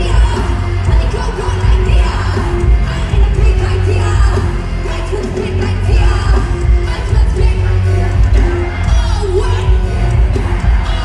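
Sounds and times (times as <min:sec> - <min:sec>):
loud live pop music: 0:00.0 - 0:11.0.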